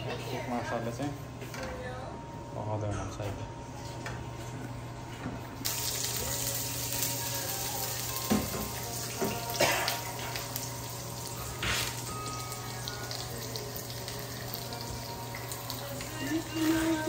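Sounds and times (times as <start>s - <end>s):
food sizzling in oil: 5.6s - 17.0s.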